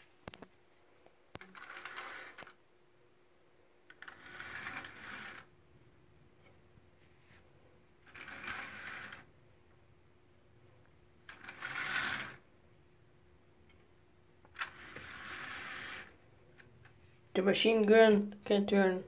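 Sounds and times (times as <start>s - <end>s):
toy tank tracks rattling on table: 1.4s - 2.6s, 3.9s - 5.5s, 8.0s - 9.3s, 11.3s - 12.4s.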